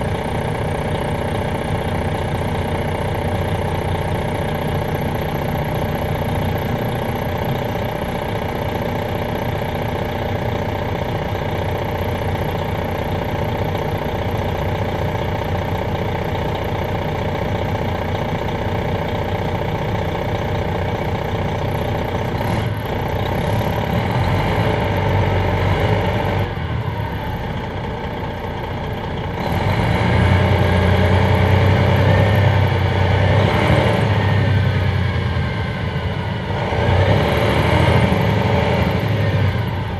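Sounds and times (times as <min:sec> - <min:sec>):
diesel coach engine idling: 0:00.0 - 0:39.9.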